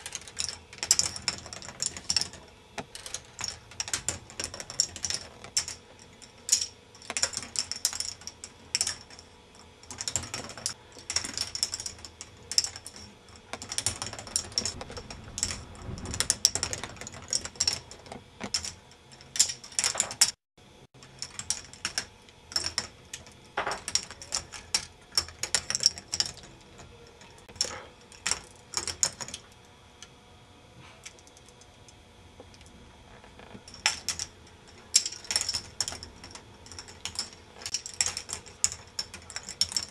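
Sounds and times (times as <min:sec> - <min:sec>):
plastic balls clattering through tracks: 0:21.2 - 0:29.4.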